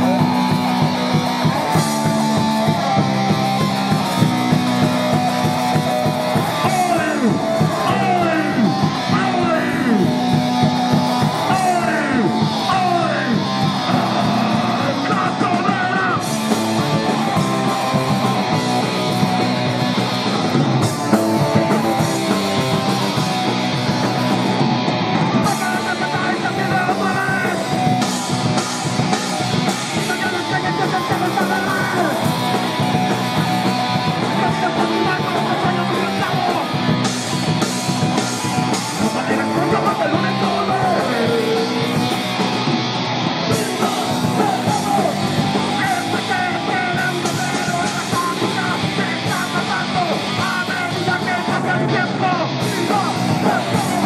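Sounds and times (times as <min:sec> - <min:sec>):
punk band playing loud: 0:00.0 - 0:54.0
person shouting vocals: 0:06.4 - 0:10.2, 0:11.3 - 0:16.3, 0:29.8 - 0:32.3, 0:39.0 - 0:42.0, 0:43.6 - 0:54.0.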